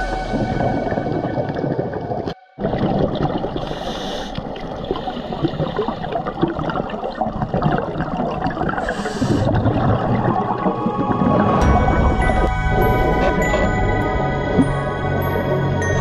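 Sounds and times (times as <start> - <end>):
gurgling exhaust bubbles: 0.0 - 15.5
underwater crackle: 0.3 - 11.6
scuba regulator inhalation hiss: 3.6 - 6.0, 8.8 - 9.5.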